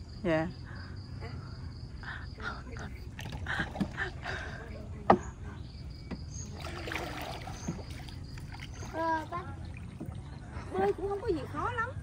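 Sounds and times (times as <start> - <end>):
insects: 0.0 - 12.0
paddle splashing water: 3.0 - 11.8.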